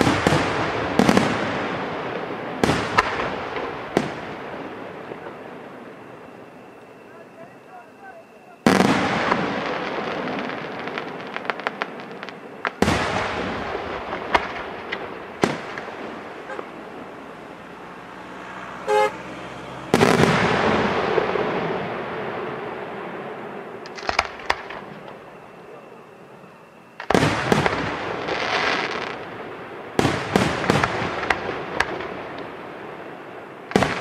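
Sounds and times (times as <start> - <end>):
firework shells booming: 0.0 - 17.7, 18.8 - 25.8, 26.4 - 34.0
sharp crackling pops: 0.0 - 34.0
horn toot: 16.4 - 16.9, 18.5 - 20.0.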